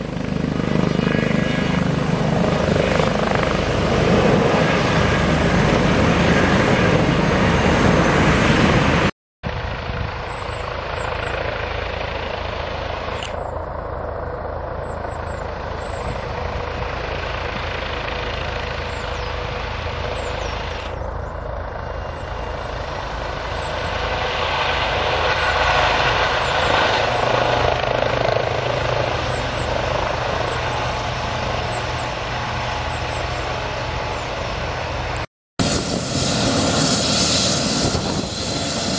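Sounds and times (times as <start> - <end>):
helicopter rotor noise: 0.0 - 38.9
turbine whine: 0.0 - 38.9.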